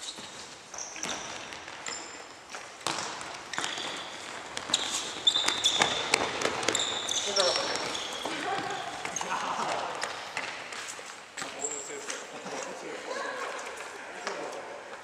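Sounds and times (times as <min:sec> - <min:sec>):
shoes squeaking on wooden floor: 0:00.0 - 0:13.9
running feet patter: 0:00.1 - 0:15.0
ball kicked and bouncing: 0:01.0 - 0:10.8.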